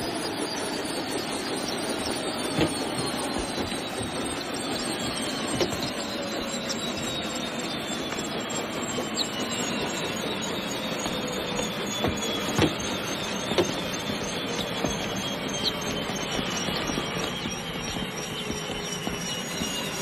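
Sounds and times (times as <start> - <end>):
helicopter turbine and rotor rush: 0.0 - 20.0
high whine falling in pitch: 0.0 - 20.0
knocks and thumps: 2.0 - 6.2, 11.0 - 20.0.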